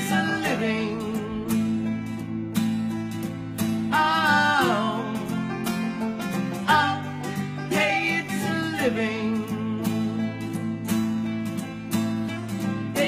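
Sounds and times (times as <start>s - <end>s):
person singing: 0.0s - 2.4s, 3.7s - 10.8s, 12.6s - 13.0s
acoustic guitar strumming: 0.0s - 13.0s
banjo picking: 0.0s - 13.0s
ukulele: 0.0s - 13.0s.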